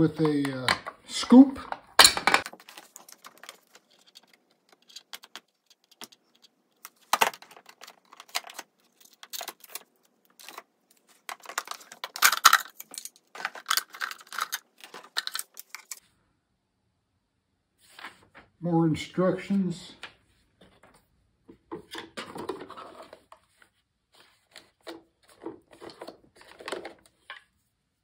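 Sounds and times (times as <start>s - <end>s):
plastic parts clicking and knocking: 0.0s - 16.0s, 21.5s - 23.4s, 24.5s - 27.6s
plastic wrapping crinkling: 2.4s - 16.0s.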